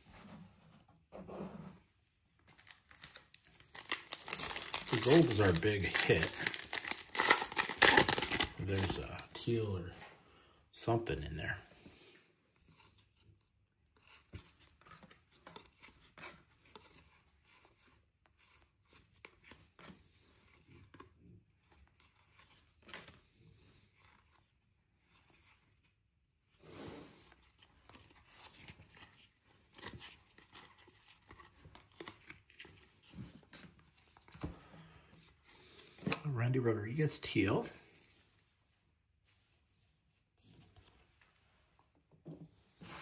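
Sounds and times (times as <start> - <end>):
cards rustling and flicking: 2.5 - 9.7.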